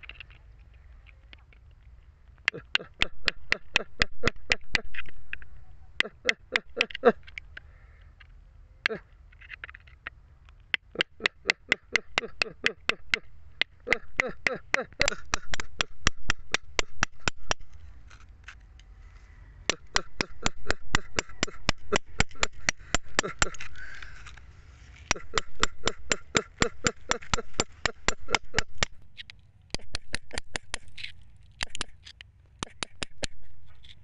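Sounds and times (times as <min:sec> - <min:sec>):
chisel tapping on rock: 0:02.4 - 0:07.6, 0:10.7 - 0:17.8, 0:19.6 - 0:24.3, 0:25.1 - 0:34.0.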